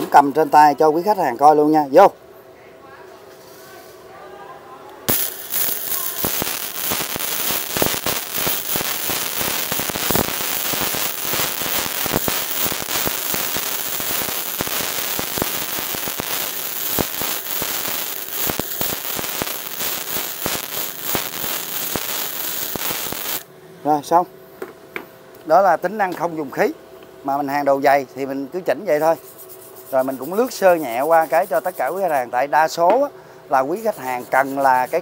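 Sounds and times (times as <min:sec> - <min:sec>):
welding arc crackling: 0:05.1 - 0:23.5, 0:29.0 - 0:32.3, 0:33.6 - 0:35.0.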